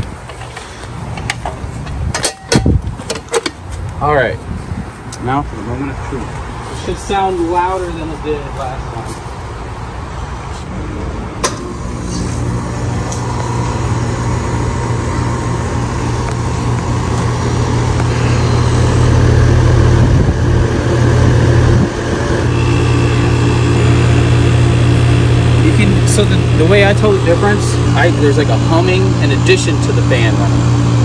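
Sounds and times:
compressor low dull hum: 10.6 - 31.0
condenser fan running: 10.7 - 31.0.

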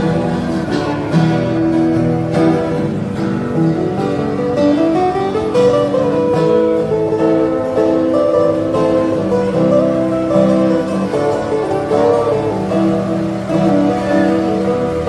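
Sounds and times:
acoustic guitar strumming: 0.0 - 15.0
picked guitar notes: 0.0 - 15.0.

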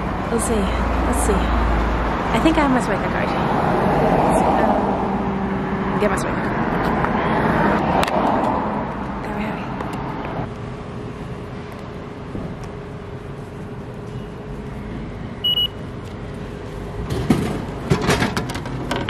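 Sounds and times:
card reader double beep: 15.4 - 15.8.

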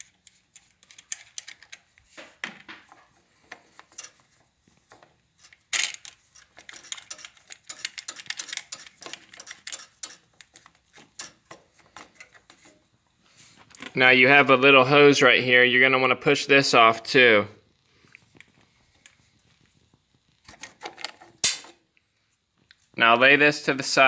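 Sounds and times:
plastic and metal clicking and rattling: 0.0 - 12.8, 20.4 - 21.8.

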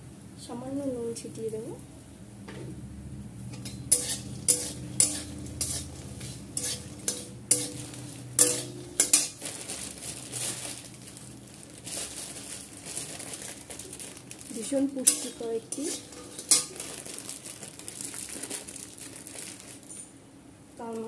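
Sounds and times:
frying sizzle: 3.4 - 20.1
metal spatula scraping metal pan: 3.5 - 9.4, 15.0 - 16.8.

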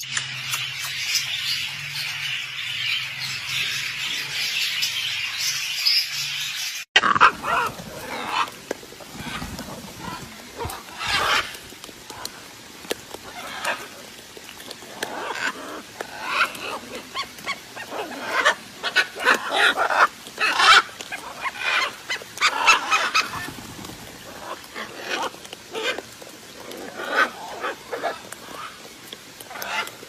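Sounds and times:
parrots squawking: 7.0 - 11.6, 15.1 - 23.5.

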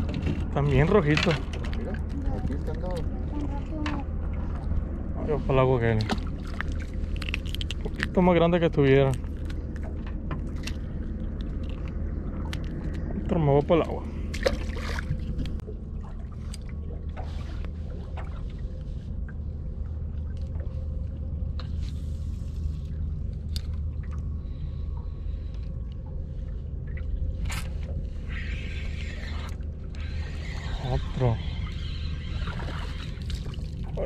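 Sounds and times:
faint steady hum: 0.0 - 34.0
low rumble: 0.0 - 34.0
water sloshing: 0.0 - 34.0.

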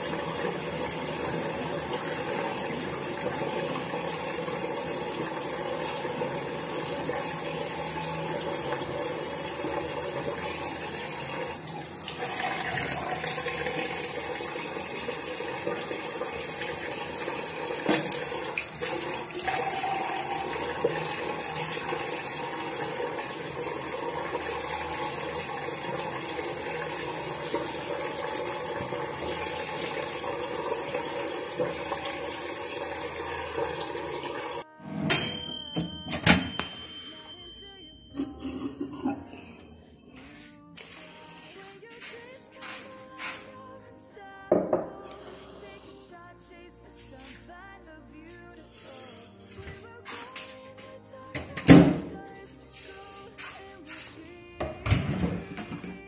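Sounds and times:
water running from a tap: 0.0 - 34.6.

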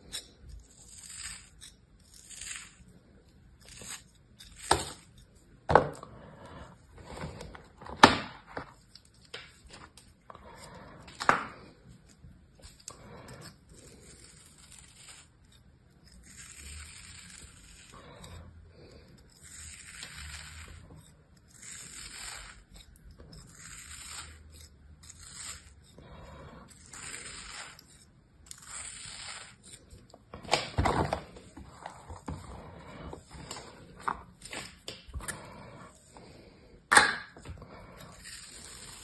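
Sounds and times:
knife scraping through sand: 26.7 - 29.8.

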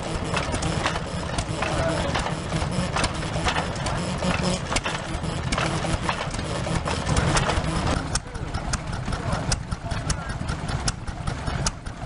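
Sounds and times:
stationary engine running: 0.0 - 12.0
sharp clicks or knocks: 0.1 - 8.8.

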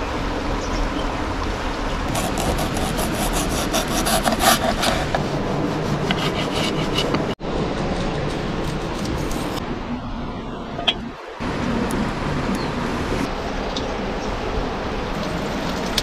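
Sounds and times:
knife cutting on wooden board: 2.1 - 5.2, 5.8 - 7.4.

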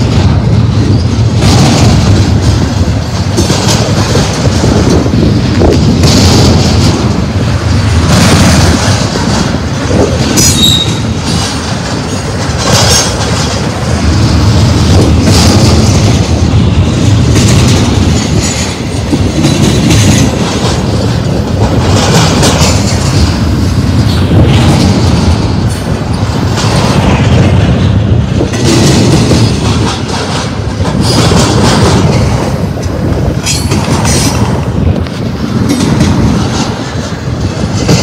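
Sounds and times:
train wheels rumbling on rail: 0.0 - 38.0
wheels clacking over track joints: 0.0 - 38.0
high wheel squeal: 10.4 - 11.1.

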